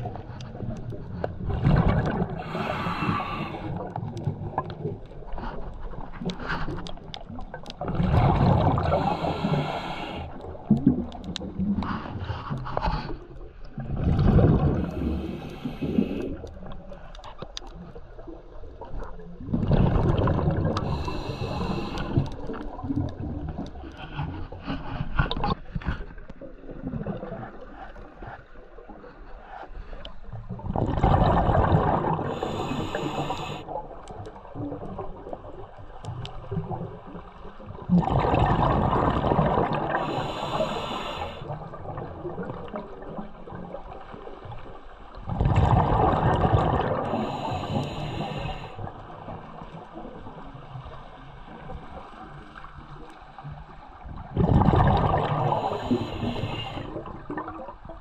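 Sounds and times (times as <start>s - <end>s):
scuba regulator breathing bubbles: 0.0s - 16.8s, 19.4s - 25.6s, 30.7s - 33.9s, 37.9s - 43.1s, 45.3s - 49.6s, 54.2s - 57.7s.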